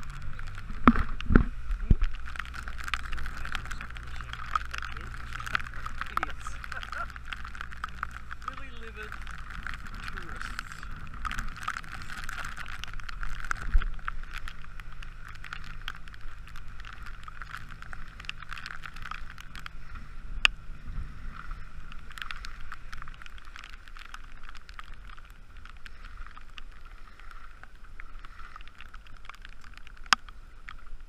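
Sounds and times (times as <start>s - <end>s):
outboard motor running: 0.0s - 22.9s
rain ticking on camera housing: 0.0s - 31.0s
wind: 0.0s - 31.0s.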